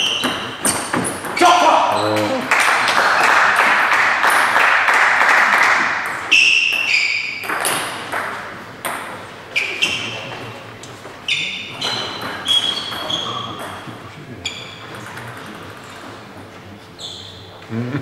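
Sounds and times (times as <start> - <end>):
table tennis ball bouncing: 0.0 - 10.3, 11.8 - 13.9
crowd noise in a hall: 0.0 - 18.0.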